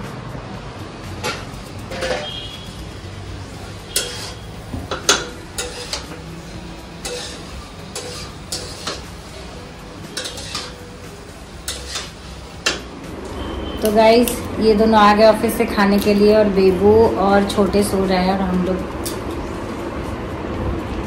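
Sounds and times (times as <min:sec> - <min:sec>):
metal spoon stirring cookware: 0:01.2 - 0:02.9, 0:03.6 - 0:12.9.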